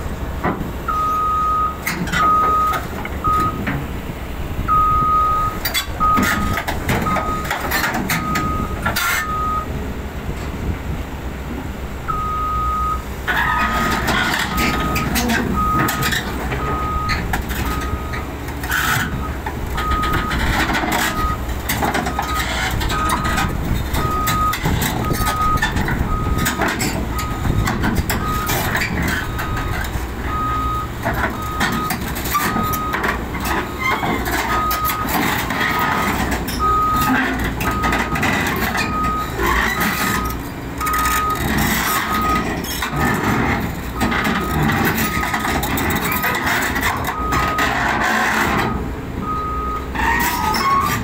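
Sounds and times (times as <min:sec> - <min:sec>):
diesel engine running: 0:00.0 - 0:51.0
excavator travel alarm beeping: 0:00.8 - 0:03.8, 0:04.6 - 0:09.8, 0:12.1 - 0:51.0.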